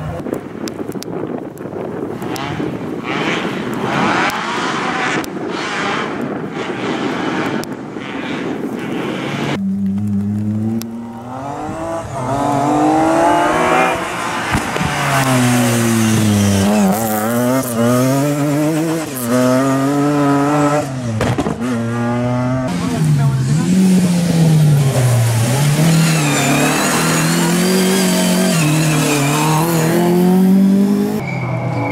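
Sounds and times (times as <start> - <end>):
rally car engine revving hard: 2.2 - 7.6, 9.4 - 31.2
rally car rushing past: 9.2 - 31.9.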